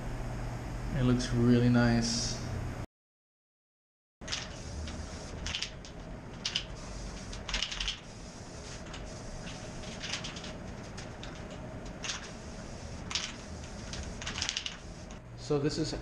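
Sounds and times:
aerosol spray hissing: 6.7s - 10.0s, 12.2s - 15.1s.

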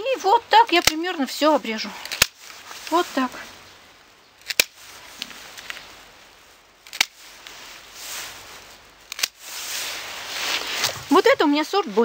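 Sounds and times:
soft rustle: 0.0s - 12.0s
secateurs snipping: 0.5s - 3.3s, 4.4s - 6.0s, 6.8s - 7.6s, 9.0s - 11.6s.

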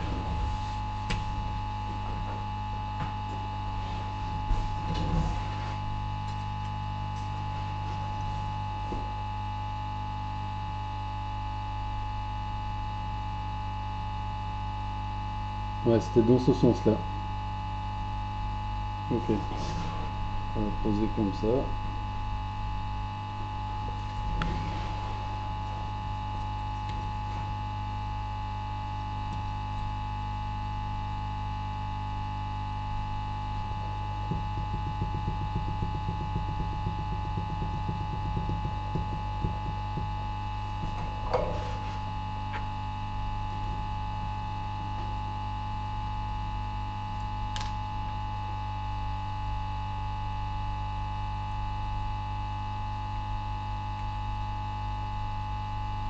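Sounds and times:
mains hum and buzz: 0.0s - 56.0s
knock: 34.2s - 42.0s.

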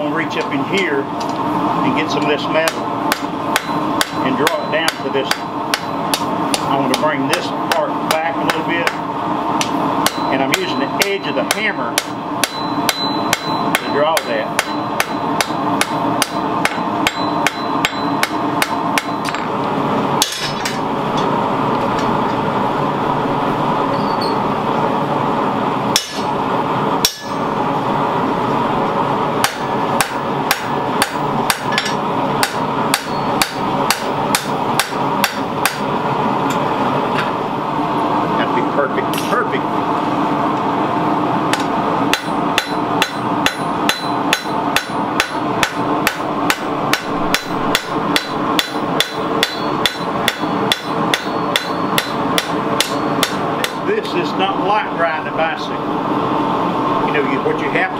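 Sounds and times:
steady hum: 0.0s - 57.9s
hammer striking blade on anvil: 2.7s - 9.0s, 9.6s - 19.5s, 20.2s - 20.8s, 25.9s - 26.3s, 27.0s - 27.5s, 29.4s - 35.9s, 41.5s - 53.8s.

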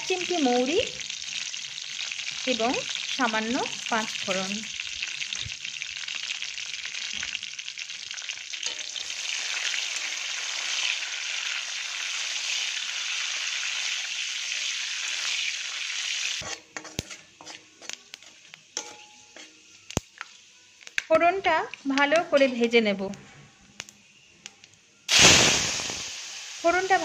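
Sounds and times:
spices sizzling in hot oil: 0.0s - 23.0s, 23.6s - 27.0s
metal spatula stirring: 8.6s - 9.2s, 16.4s - 20.0s.

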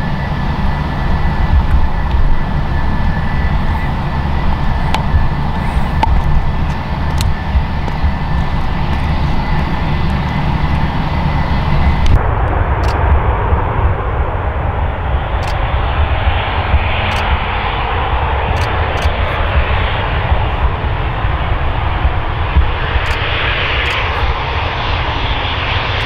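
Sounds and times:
jet engines whining: 0.0s - 26.0s
low rumble: 0.0s - 26.0s.

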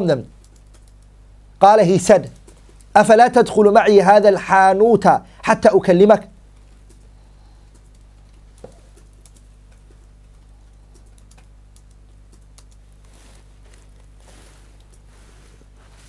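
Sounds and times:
steady low hum: 0.0s - 16.0s
faint clicks and taps: 0.3s - 1.2s, 2.2s - 3.0s, 6.5s - 16.0s.

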